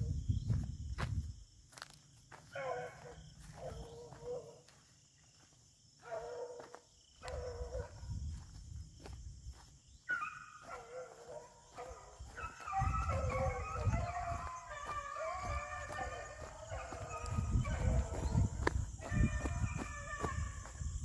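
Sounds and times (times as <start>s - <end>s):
dogs baying: 2.5s - 4.8s, 6.0s - 8.0s, 10.1s - 20.9s.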